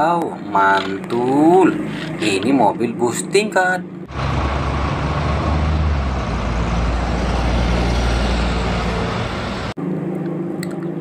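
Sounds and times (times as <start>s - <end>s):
bus engine and road noise: 0.0s - 3.0s, 4.0s - 9.8s.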